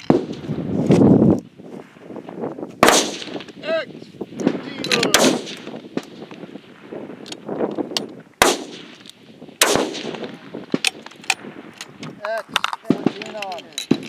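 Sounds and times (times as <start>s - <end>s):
faint distant rifle shots: 2.8s - 3.5s, 4.4s - 6.3s, 8.4s - 9.0s, 9.6s - 11.0s
rifle shots: 2.8s - 3.6s, 4.4s - 6.7s, 8.4s - 11.7s, 12.8s - 14.0s.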